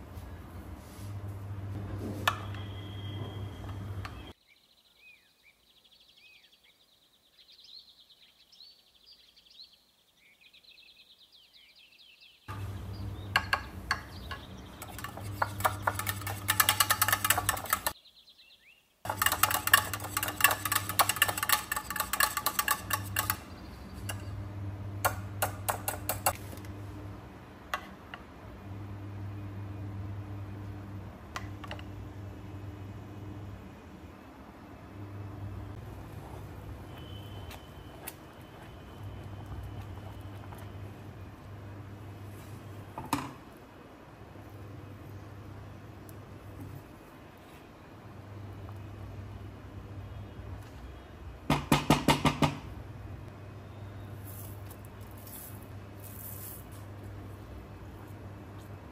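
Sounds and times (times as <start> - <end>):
birds chirping: 2.4 - 16.2, 23.3 - 24.4
kitchen utensils clattering: 13.4 - 18.0, 19.1 - 24.3.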